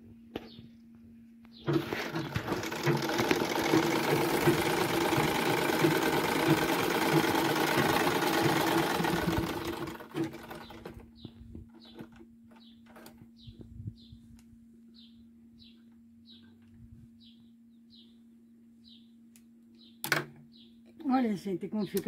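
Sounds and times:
sewing machine stitching: 0:01.6 - 0:11.0.

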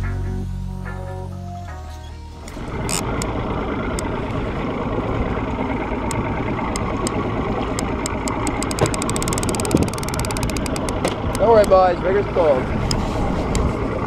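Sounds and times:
outboard motor running: 0:00.0 - 0:14.0
fishing reel clicking: 0:02.8 - 0:03.3, 0:07.8 - 0:11.8.

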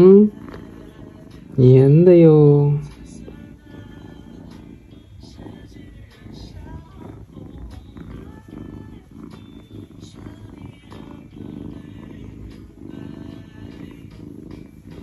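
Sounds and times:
kitten purring: 0:00.0 - 0:15.0.

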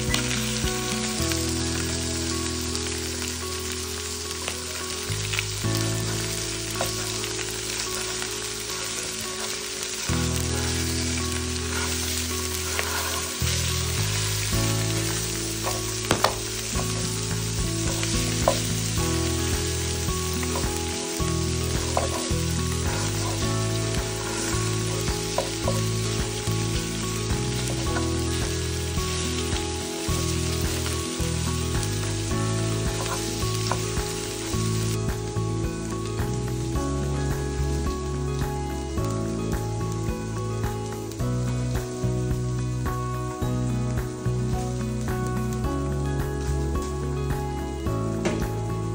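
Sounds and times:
fish sizzling in a pan: 0:00.0 - 0:48.9
spatula scraping a pan: 0:11.6 - 0:14.0.

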